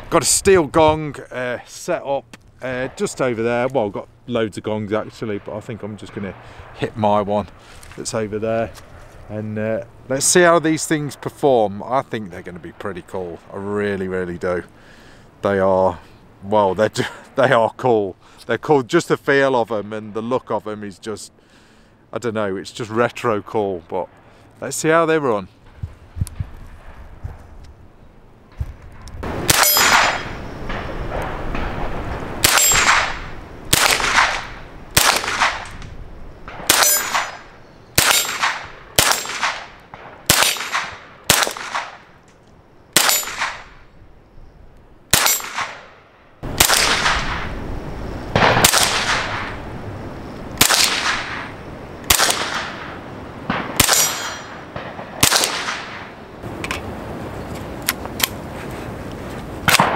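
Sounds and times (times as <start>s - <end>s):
suppressed gunshots: 29.2s - 35.8s, 36.4s - 42.1s, 43.0s - 43.8s, 45.1s - 47.5s, 48.3s - 49.6s, 50.6s - 56.6s, 59.7s - 59.9s.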